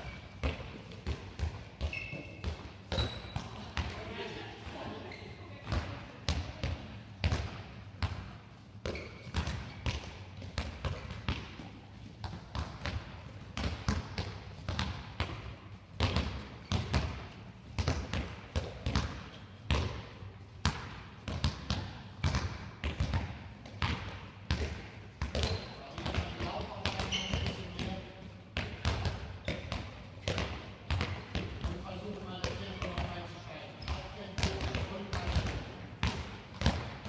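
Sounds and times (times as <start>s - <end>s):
balls bouncing on hall floor: 0.0s - 37.0s.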